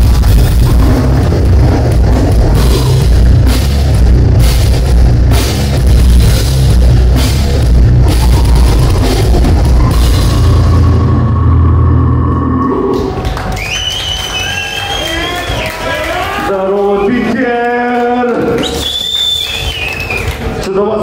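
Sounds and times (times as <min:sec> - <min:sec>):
distorted electric guitars: 0:00.0 - 0:13.5
pounding drum kit: 0:00.0 - 0:13.6.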